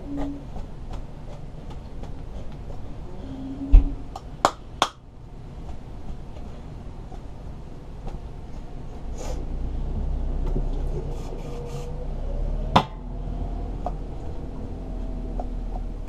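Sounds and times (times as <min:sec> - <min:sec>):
tractor engine rumble: 0:05.2 - 0:16.0.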